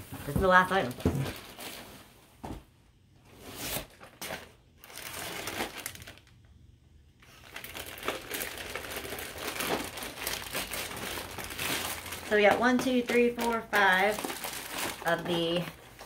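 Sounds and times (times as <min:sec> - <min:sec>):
cardboard scraping: 0:03.3 - 0:04.4
plastic packaging crinkling: 0:03.5 - 0:06.6, 0:07.2 - 0:16.0.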